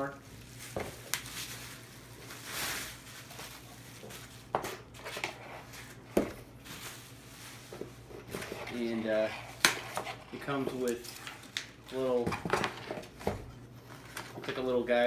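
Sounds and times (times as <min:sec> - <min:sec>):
bubble wrap rustling and crinkling: 0:00.0 - 0:12.2.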